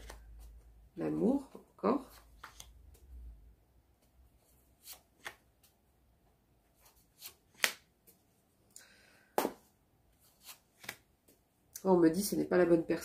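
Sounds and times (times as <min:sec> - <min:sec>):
cards being shuffled: 0:00.0 - 0:00.8, 0:02.0 - 0:03.1, 0:04.0 - 0:05.8, 0:06.8 - 0:08.2, 0:10.2 - 0:11.1.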